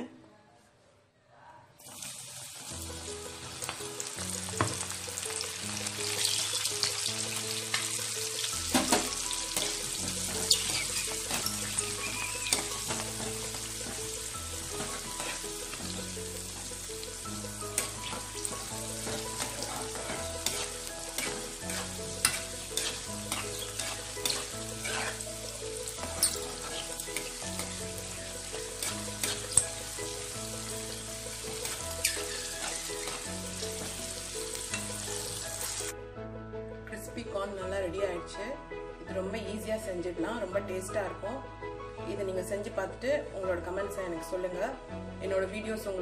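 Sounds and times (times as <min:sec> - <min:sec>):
quiet background music: 0:00.0 - 0:46.0
frying oil sizzling: 0:01.8 - 0:36.0.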